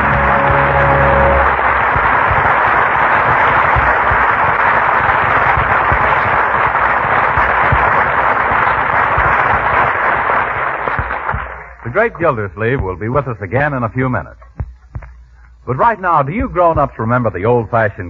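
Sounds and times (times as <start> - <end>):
audience applauding: 0.0 - 12.5.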